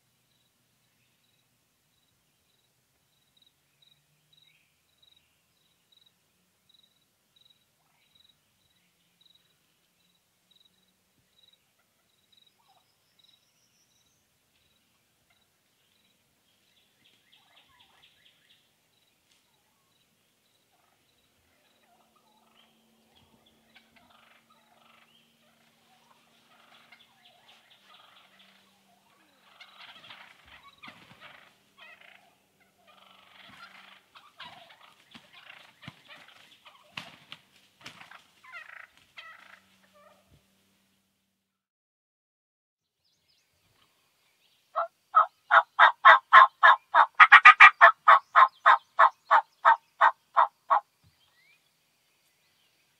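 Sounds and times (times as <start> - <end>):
turkeys gobbling: 23.7 - 40.3, 44.8 - 50.8.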